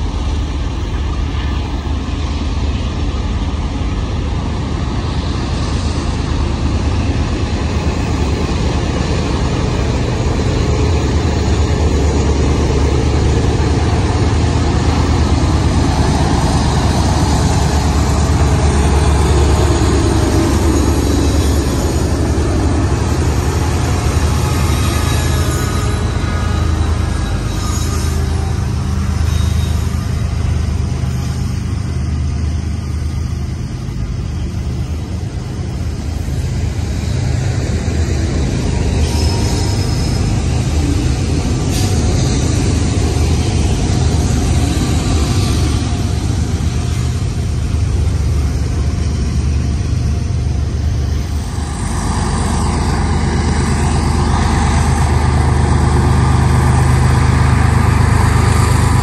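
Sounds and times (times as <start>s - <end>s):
diesel locomotive engines droning: 0.0s - 59.0s
freight cars rolling on rails: 0.0s - 59.0s
hiss: 38.9s - 48.4s.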